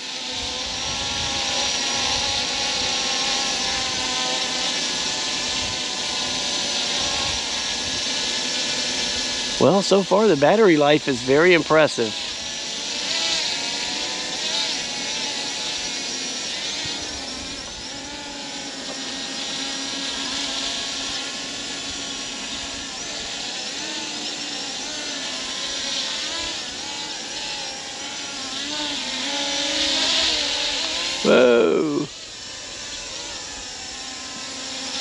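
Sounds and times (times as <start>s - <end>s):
drone propeller whine: 0.0s - 35.0s.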